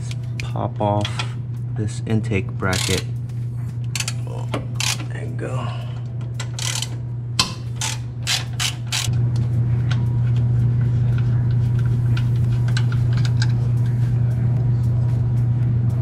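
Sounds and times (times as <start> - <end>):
steady low hum: 0.0 - 16.0
hand ratchet clicking: 2.7 - 3.1, 4.8 - 5.1, 6.4 - 9.2.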